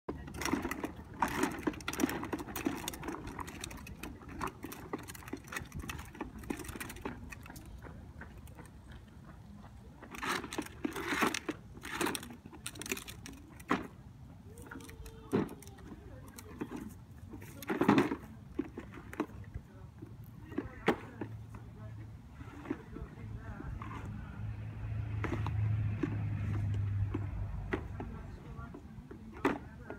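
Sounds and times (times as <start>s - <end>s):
clicks and rattles: 0.1s - 9.0s, 10.0s - 19.6s
plastic toy wheels rolling on concrete: 0.1s - 29.9s.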